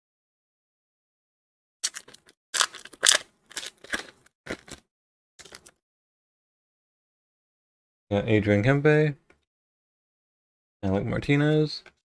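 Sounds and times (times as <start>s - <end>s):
foil wrapper crinkling: 1.8s - 4.8s.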